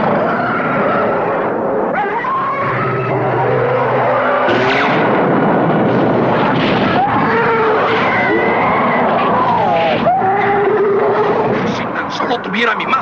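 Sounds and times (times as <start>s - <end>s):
creature screeching cries: 0.0s - 1.4s, 2.0s - 4.9s, 7.0s - 11.5s
dense loud din: 0.0s - 13.0s.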